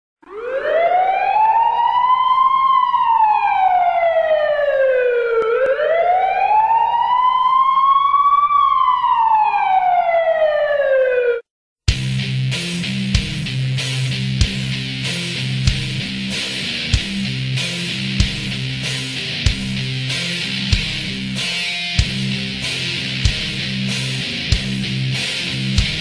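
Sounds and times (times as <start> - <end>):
ambulance siren wailing: 0.2 - 11.5
music: 11.9 - 26.0.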